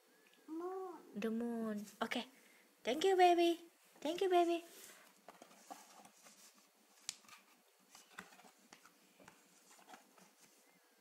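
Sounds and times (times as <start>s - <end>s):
paper rustling: 4.8s - 10.6s.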